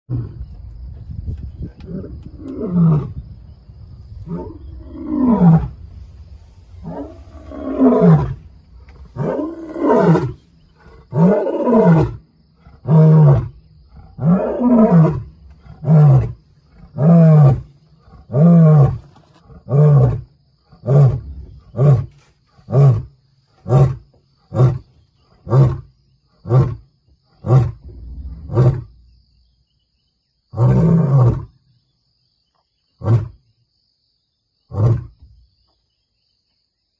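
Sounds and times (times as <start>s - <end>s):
lion roaring: 1.8s - 3.2s, 4.2s - 25.9s, 30.6s - 31.6s.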